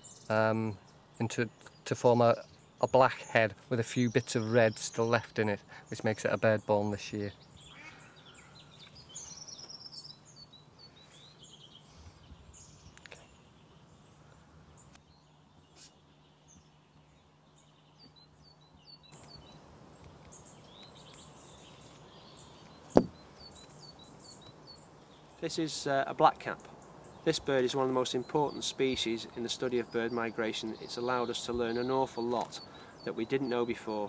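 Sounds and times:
songbirds chirping: 0.0s - 34.0s
sharp knock: 22.9s - 23.2s.

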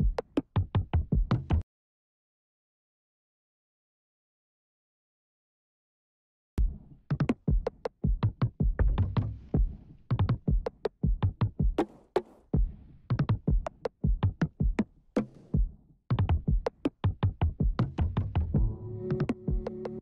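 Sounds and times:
electronic music with drum machine: 18.6s - 20.0s.

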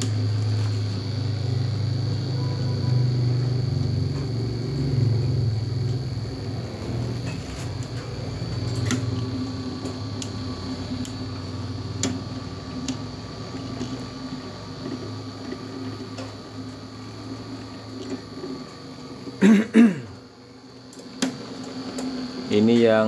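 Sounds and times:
winding machine motor hum: 0.0s - 23.0s.

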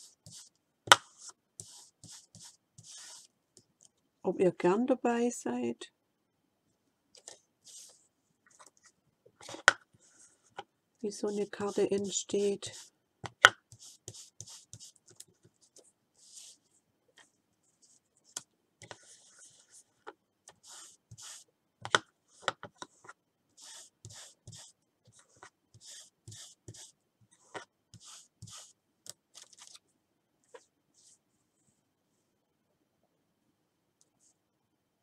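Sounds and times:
scratchy rubbing on paper: 0.0s - 3.3s, 7.6s - 8.0s, 11.1s - 12.9s, 13.7s - 16.7s, 18.8s - 20.0s, 20.6s - 21.5s, 22.4s - 28.8s.

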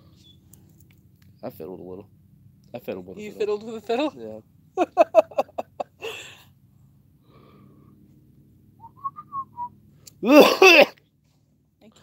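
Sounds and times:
man whistling: 8.8s - 9.8s.

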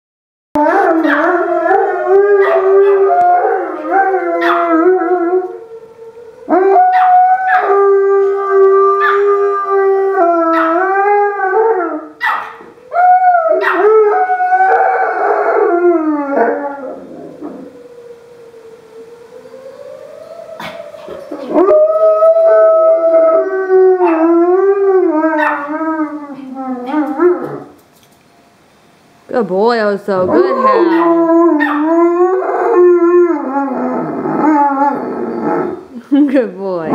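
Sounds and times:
dogs howling: 0.6s - 27.8s, 30.2s - 35.9s
faint siren wailing: 12.9s - 27.7s, 29.3s - 35.8s.

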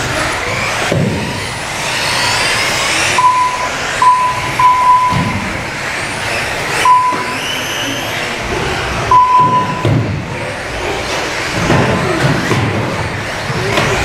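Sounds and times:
rc car motors whining: 0.0s - 14.0s
short high beeps: 3.2s - 5.5s, 6.9s - 7.5s, 9.1s - 9.9s.

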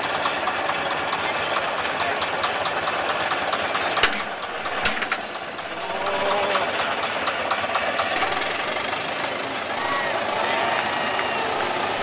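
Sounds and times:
diesel engine clattering: 0.0s - 12.0s
sharp metal clanks: 4.0s - 5.8s.

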